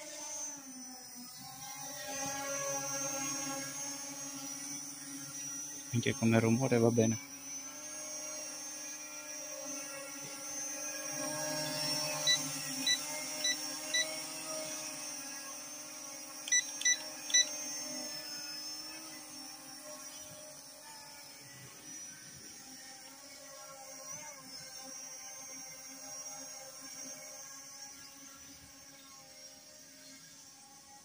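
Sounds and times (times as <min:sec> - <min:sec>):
quadcopter hovering hum: 0:00.0 - 0:31.0
short electronic beeps: 0:12.2 - 0:14.2, 0:16.5 - 0:17.5.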